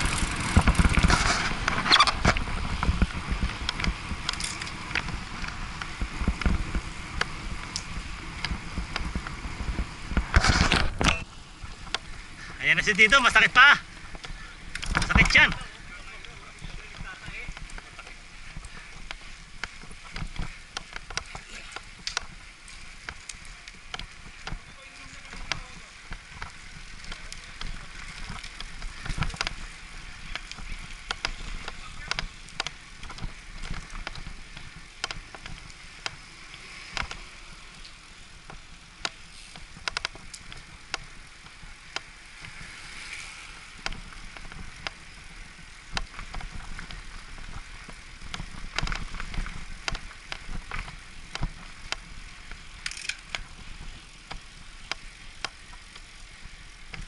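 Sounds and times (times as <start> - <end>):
bicycle tyres rumbling on road: 0.0 - 57.0
wind hiss: 0.0 - 57.0
sharp clicks and rattles: 52.8 - 53.6.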